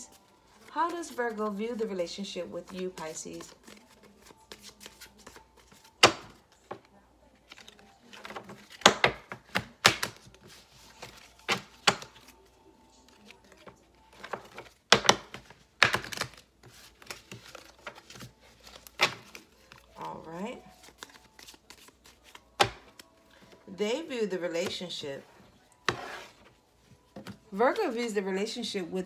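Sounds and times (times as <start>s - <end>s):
cards being shuffled: 2.6s - 23.6s.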